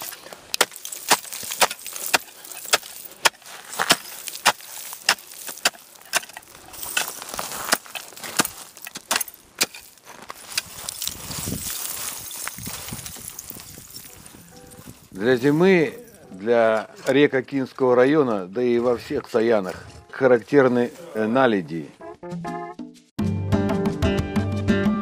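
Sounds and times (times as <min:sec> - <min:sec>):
ice chisel striking ice: 0:00.0 - 0:11.2.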